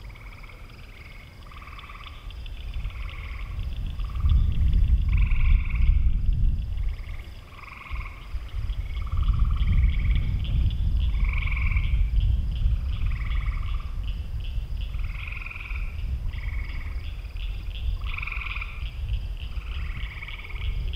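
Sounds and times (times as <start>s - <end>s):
frogs trilling: 0.0s - 20.9s
high pulsing frog chorus: 0.0s - 20.9s
low rumble: 2.2s - 20.9s.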